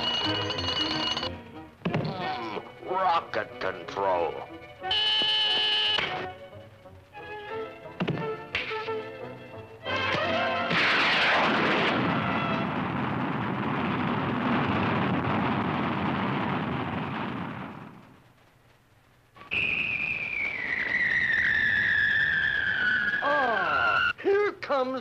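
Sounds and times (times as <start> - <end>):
rocket launch rushing blast: 10.7 - 18.0
high whistle falling in pitch: 19.4 - 24.2.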